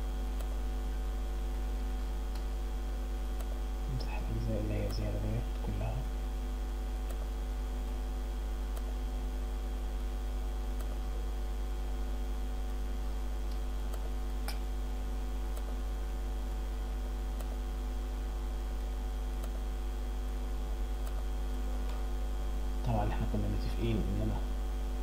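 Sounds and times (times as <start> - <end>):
electrical mains hum: 0.0 - 25.0
computer mouse clicks: 3.4 - 3.6, 10.7 - 11.0, 18.8 - 19.6.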